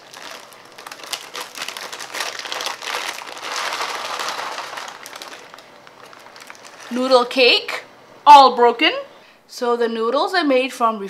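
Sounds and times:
plastic wrapper crinkling: 0.0s - 7.8s.

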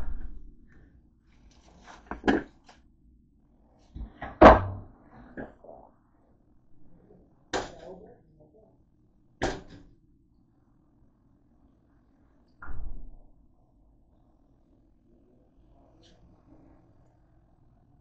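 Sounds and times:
toaster clunks and knocks: 4.0s - 4.8s, 9.4s - 9.9s.

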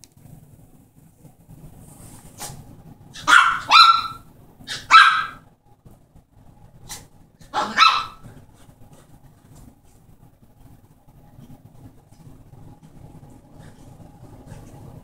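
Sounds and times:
small dog barking: 3.1s - 5.5s, 6.9s - 8.4s.

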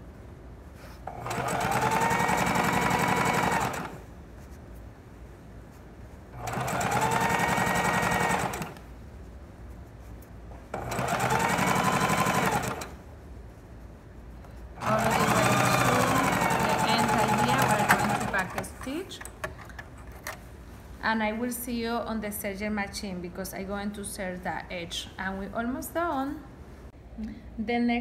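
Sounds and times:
sewing machine stitching: 1.1s - 4.0s, 6.4s - 8.8s, 10.7s - 13.0s, 14.8s - 19.1s.

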